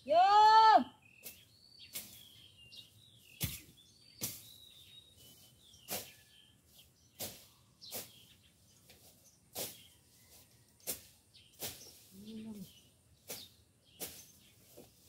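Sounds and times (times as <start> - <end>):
woman shouting: 0.0 - 1.0
small birds chirping: 0.0 - 15.0
blade striking weeds: 1.2 - 2.4, 3.2 - 6.4, 7.1 - 10.0, 10.8 - 12.1, 13.2 - 15.0.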